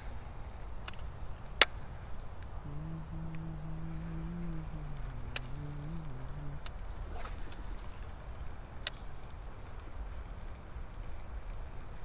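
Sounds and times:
insects chirping: 1.2s - 10.7s
low steady hum: 2.2s - 9.7s.

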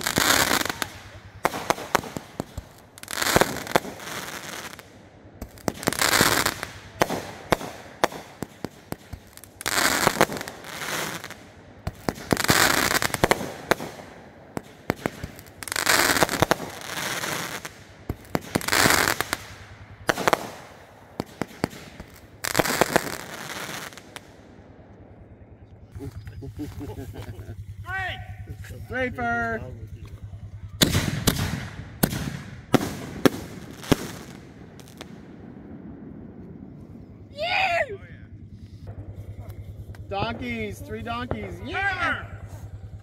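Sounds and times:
fireworks bangs and pops: 0.0s - 24.4s, 29.9s - 37.0s, 38.5s - 41.8s.

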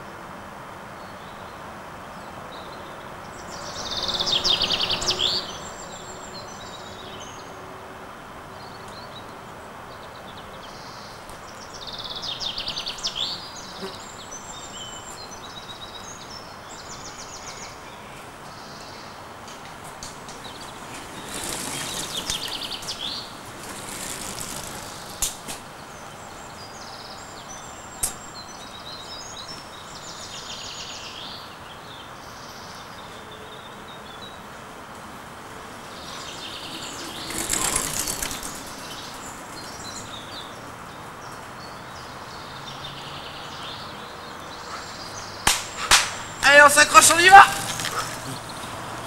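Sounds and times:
outdoor background noise: 0.0s - 49.0s
birds chirping and singing: 35.7s - 49.0s.

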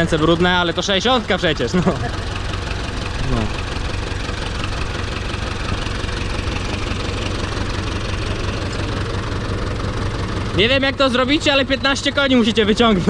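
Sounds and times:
tractor diesel engine idling: 0.0s - 13.0s.

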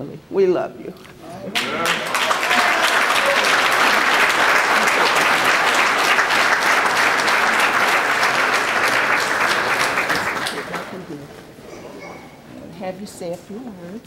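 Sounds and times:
audience applauding: 1.5s - 11.1s.

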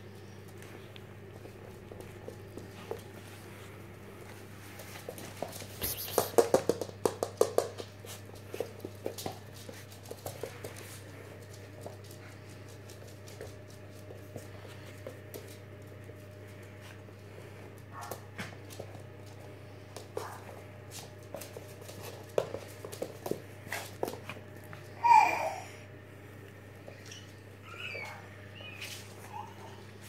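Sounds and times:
puppy claws clicking on wood floor: 4.2s - 16.7s, 17.9s - 24.9s.

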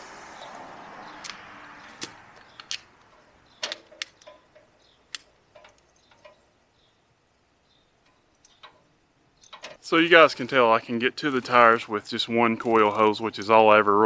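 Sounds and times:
air hiss: 0.0s - 1.6s
air hose fittings clicking: 1.2s - 6.5s, 8.0s - 9.9s.

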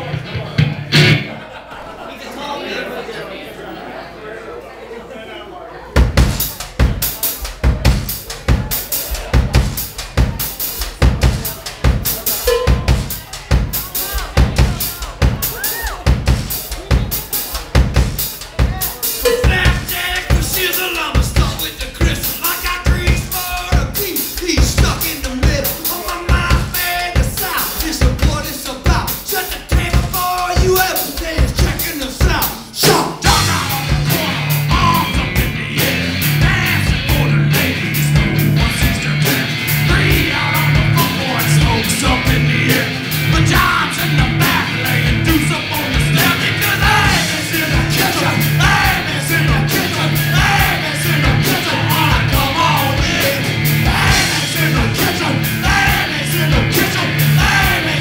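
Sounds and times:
electric guitar riff: 0.0s - 1.4s, 33.2s - 58.0s
drum kit: 0.0s - 1.6s, 5.9s - 58.0s
person singing: 18.6s - 58.0s.

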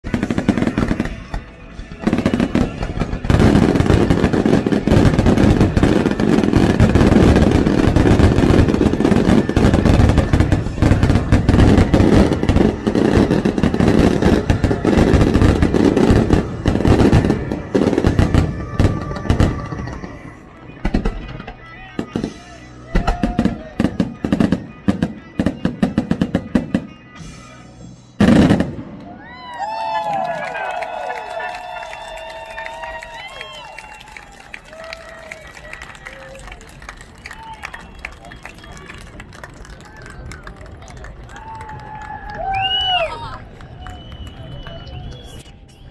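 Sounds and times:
fireworks bangs and booms: 0.0s - 27.0s, 28.2s - 29.1s
music: 0.0s - 31.3s.

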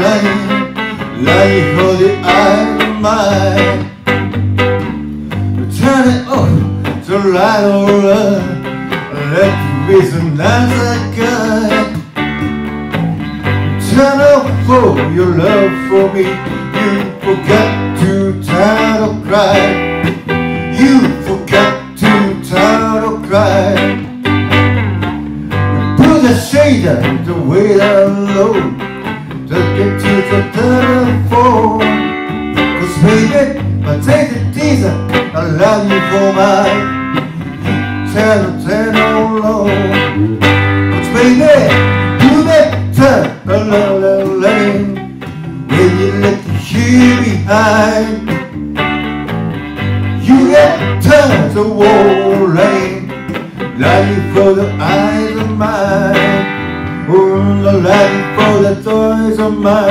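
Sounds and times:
person singing: 0.0s - 4.1s, 5.6s - 12.2s, 13.7s - 24.2s, 25.6s - 48.5s, 50.0s - 59.9s
electric guitar blues groove: 0.0s - 59.9s.

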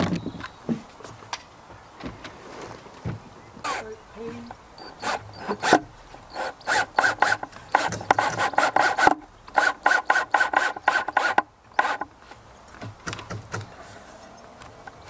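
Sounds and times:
rasp on wood: 6.7s - 12.0s.

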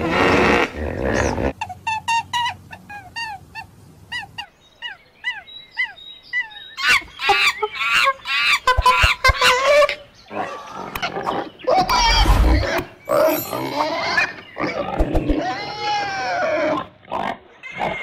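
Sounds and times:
monkeys chirping: 1.2s - 15.4s.

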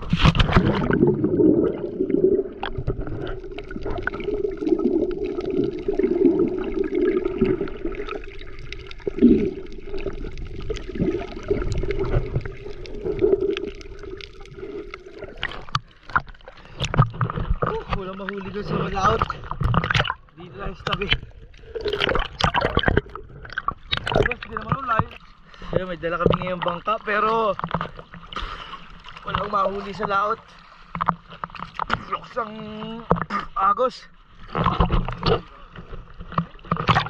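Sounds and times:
knocks and splashes: 0.0s - 1.9s, 15.2s - 20.2s, 20.8s - 25.3s, 27.5s - 30.2s, 34.5s - 37.0s
sea water sloshing and gurgling: 0.0s - 37.0s.

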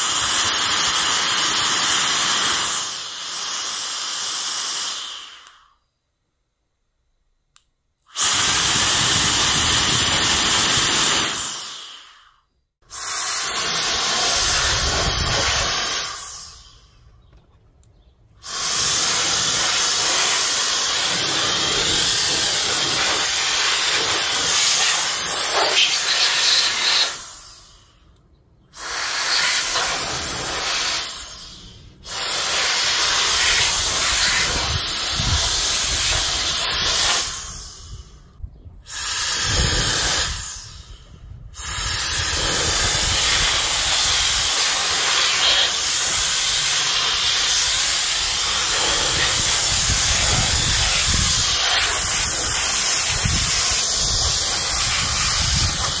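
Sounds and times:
electric mini jet fan running: 0.0s - 5.6s, 8.1s - 12.2s, 12.9s - 16.8s, 18.4s - 27.6s, 38.9s - 56.0s.

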